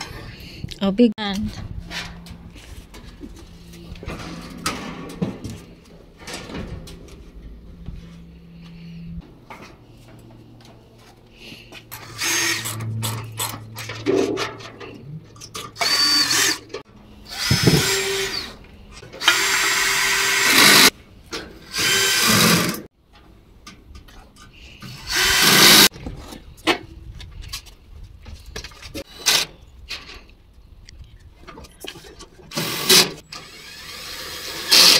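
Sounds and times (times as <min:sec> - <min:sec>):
power drill driving screws: 0:11.9 - 0:13.5, 0:15.8 - 0:16.7, 0:17.3 - 0:18.6, 0:19.2 - 0:20.9, 0:21.6 - 0:22.9, 0:24.9 - 0:25.9, 0:32.5 - 0:34.9.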